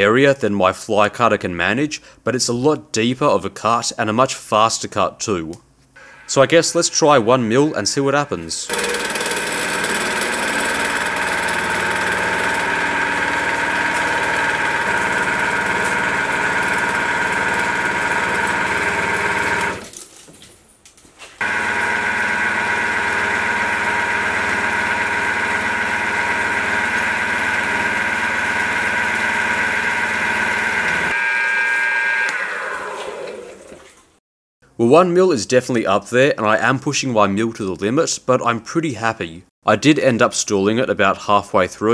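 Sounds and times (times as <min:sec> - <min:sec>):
milling machine cutting steel: 0:08.7 - 0:19.8, 0:21.4 - 0:33.5.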